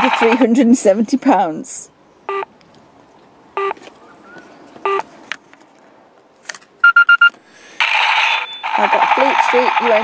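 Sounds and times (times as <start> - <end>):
short electronic beeps: 2.3 - 2.5, 3.6 - 3.8, 4.8 - 5.0, 6.8 - 7.3, 8.2 - 8.8.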